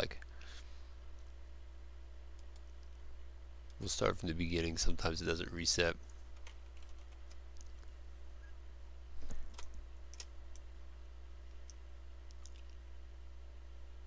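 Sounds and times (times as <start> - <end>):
steady low hum: 0.0 - 14.0
computer mouse and keyboard clicks: 6.1 - 7.9, 11.6 - 12.8.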